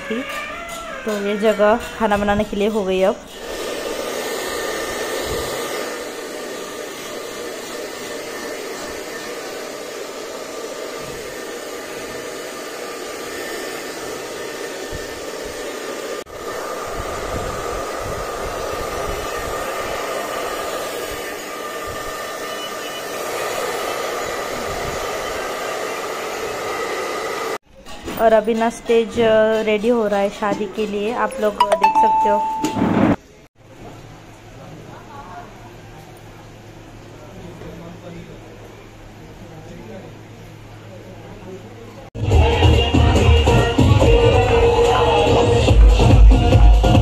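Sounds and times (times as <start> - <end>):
hair dryer blowing: 3.3 - 27.6.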